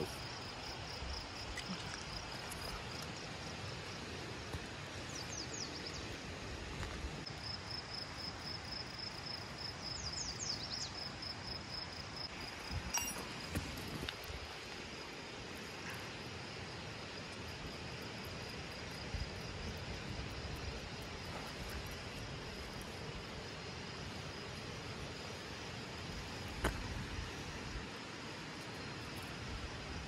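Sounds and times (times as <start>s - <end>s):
high-pitched insect trill: 7.3s - 15.1s.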